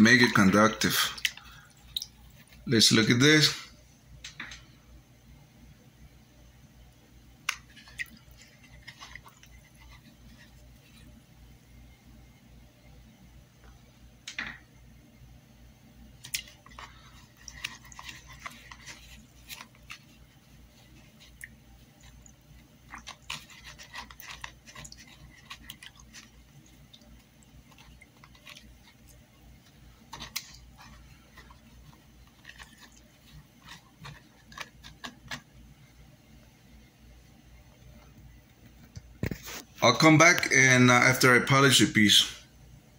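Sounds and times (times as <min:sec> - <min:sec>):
liquid swishing in a plastic tub: 0:07.5 - 0:11.6, 0:16.0 - 0:36.8.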